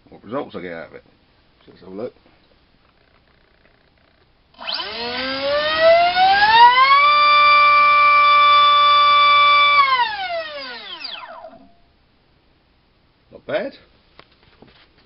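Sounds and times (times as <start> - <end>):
electric motor propeller whine: 4.6 - 11.7.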